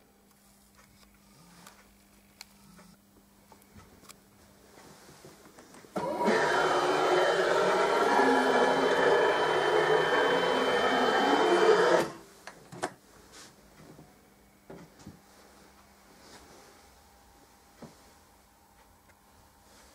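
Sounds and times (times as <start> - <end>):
printer motor whirring: 6.0 - 12.2.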